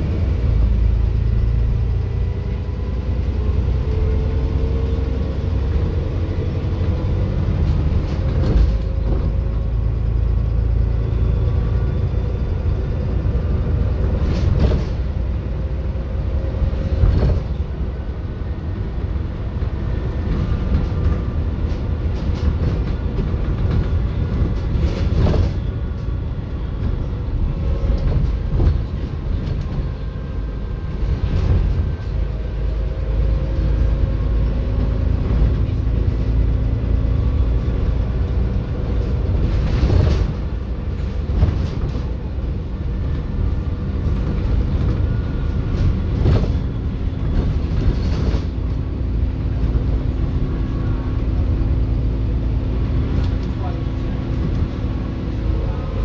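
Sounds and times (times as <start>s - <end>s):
bus engine and road rumble: 0.0s - 56.0s
bus body knocking over bumps: 7.5s - 9.6s, 13.6s - 15.5s, 16.6s - 17.8s, 19.6s - 33.6s, 34.5s - 50.7s.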